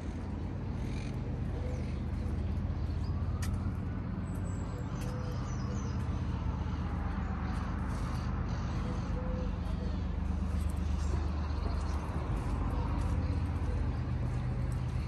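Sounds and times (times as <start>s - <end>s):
distant city traffic hum: 0.0s - 15.0s
vehicle passing: 4.8s - 15.0s.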